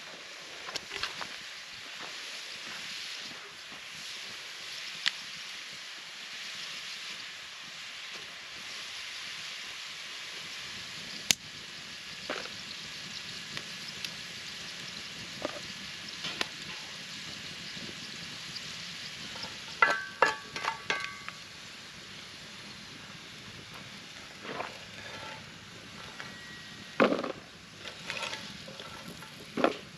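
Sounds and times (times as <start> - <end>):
food sizzling in skillet: 0.0 - 29.9
ringing metal clanks: 19.8 - 21.3.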